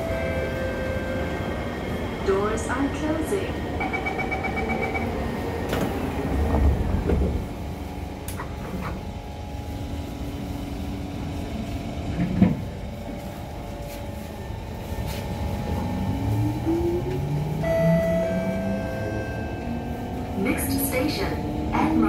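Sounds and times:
train door closing chime: 3.8s - 7.3s, 12.1s - 21.3s.

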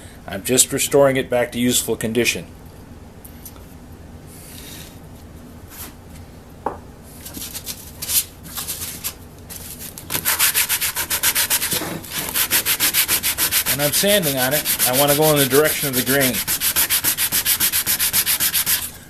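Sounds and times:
sandpaper sanding wood: 10.1s - 18.9s.

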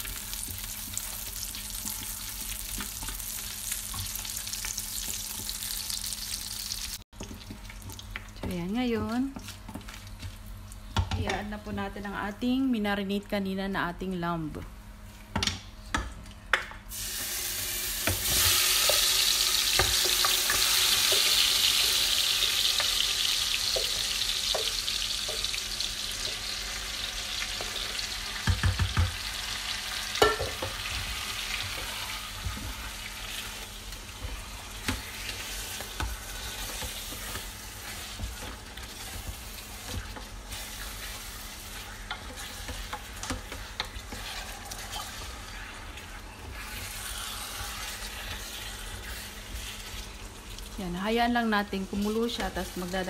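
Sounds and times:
meat sizzling in oil: 0.0s - 8.2s, 16.9s - 51.1s.

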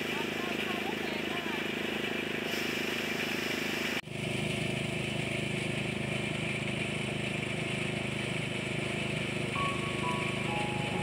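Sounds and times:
stalks hissing against drum: 0.0s - 4.0s
rice thresher running: 0.0s - 11.0s.

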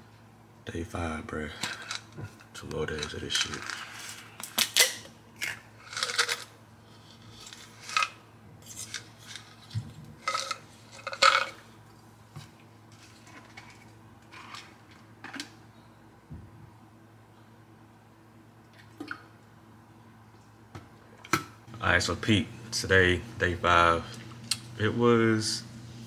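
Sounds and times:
small objects clicking and crinkling: 1.6s - 6.5s.

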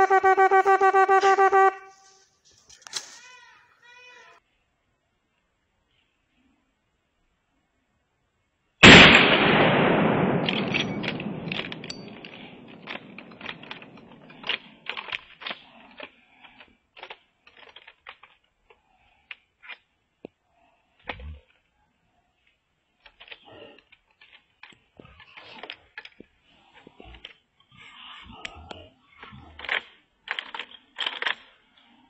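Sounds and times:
rifle shot echoing: 8.8s - 14.3s
light cracks and clicks: 10.4s - 20.4s.

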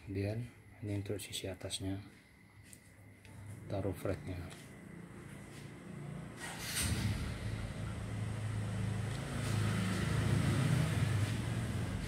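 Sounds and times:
vehicle engine rumbling: 3.5s - 12.0s.

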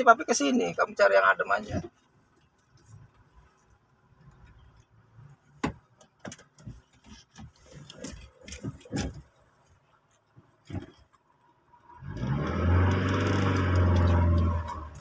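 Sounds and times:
sharp clicks and knocks in car: 1.7s - 11.5s.

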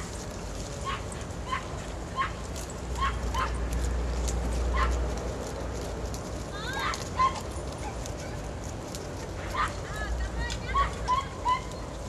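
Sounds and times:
dog yipping: 0.8s - 3.6s, 4.7s - 5.0s, 6.7s - 8.5s, 9.5s - 10.0s, 10.6s - 12.0s.

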